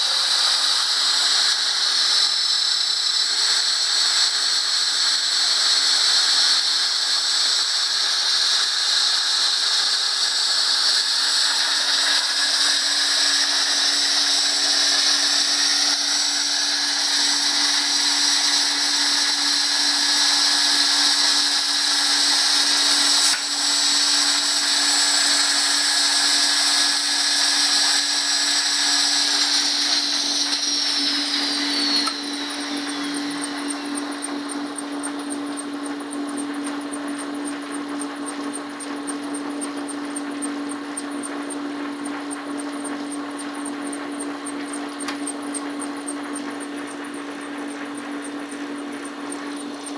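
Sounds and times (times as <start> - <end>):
router spindle high-pitched whine: 0.0 - 49.9.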